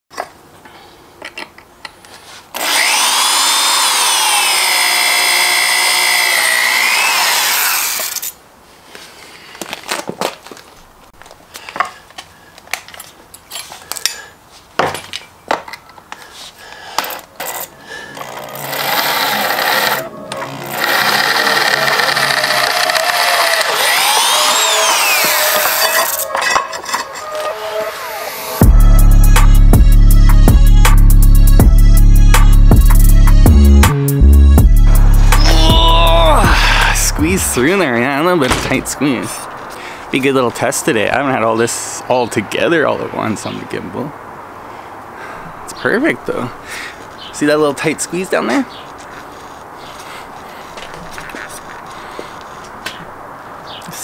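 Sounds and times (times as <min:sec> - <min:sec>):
power drill boring through steel: 0:02.6 - 0:08.3, 0:17.4 - 0:28.6, 0:35.3 - 0:37.6
clicks and scrapes: 0:25.2 - 0:27.6.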